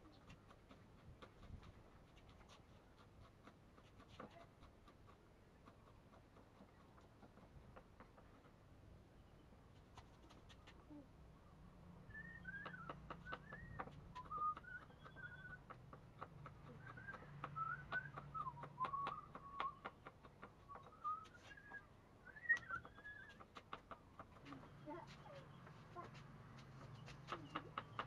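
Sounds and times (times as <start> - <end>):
person whistling: 22.3 - 23.4.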